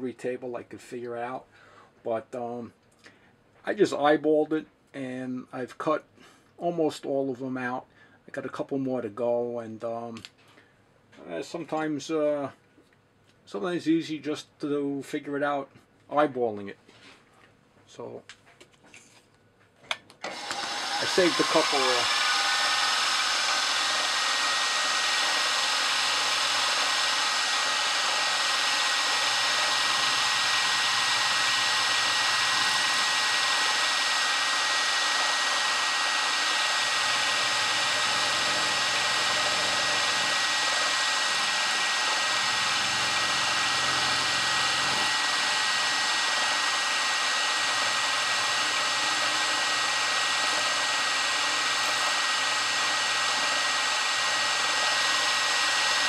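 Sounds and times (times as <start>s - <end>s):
milling machine cutting aluminum: 20.2s - 56.0s.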